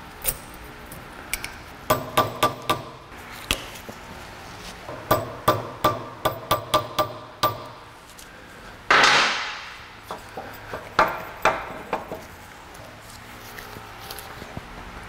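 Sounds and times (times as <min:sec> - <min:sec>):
hammer tapping on metal: 0:01.9 - 0:03.0, 0:04.9 - 0:07.8, 0:10.4 - 0:12.3.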